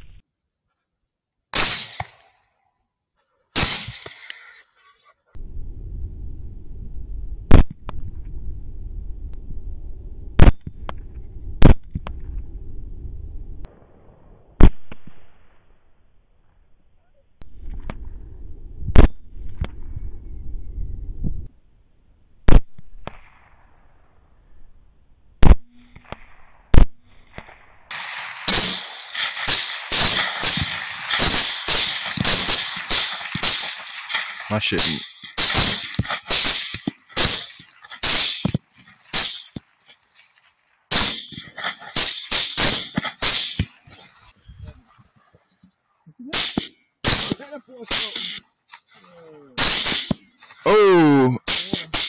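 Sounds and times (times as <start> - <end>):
rifle shots: 1.6 - 2.2, 27.9 - 39.6
steady low rumble: 5.4 - 14.6.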